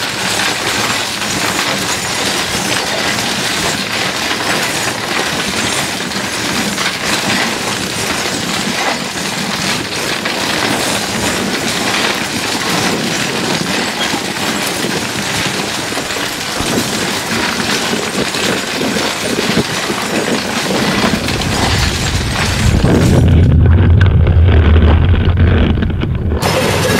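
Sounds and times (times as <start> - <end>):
harsh crackling noise music: 0.0 - 26.9
deep rumble: 20.8 - 26.9.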